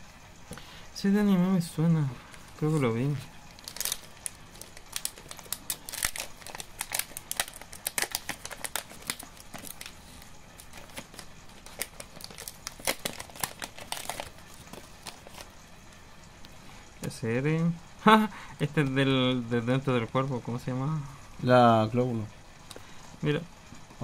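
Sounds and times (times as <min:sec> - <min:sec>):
plastic wrapper crinkling: 0:02.3 - 0:15.6.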